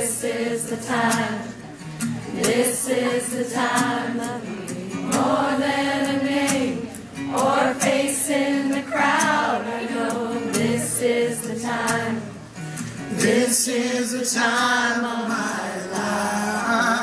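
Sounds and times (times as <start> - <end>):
live pop-rock music: 0.0 - 17.0
man singing: 13.1 - 17.0.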